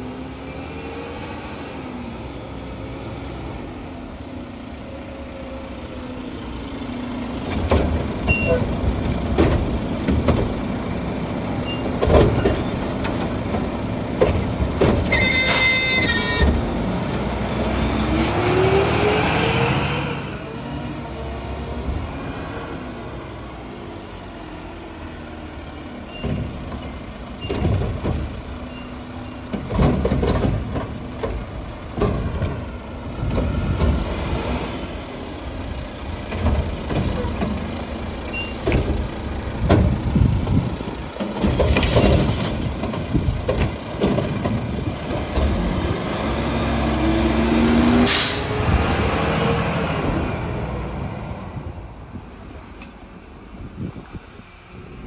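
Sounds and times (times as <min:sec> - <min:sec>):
garbage truck diesel engine surging: 0:26.5 - 0:52.7
metal clanks and knocks: 0:27.4 - 0:32.7
air brake hiss: 0:48.0 - 0:48.6.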